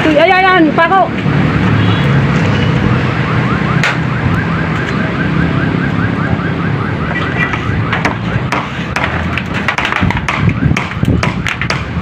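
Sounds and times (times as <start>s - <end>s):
road traffic rumble: 0.0s - 12.0s
electronic alarm chirping: 1.8s - 8.5s.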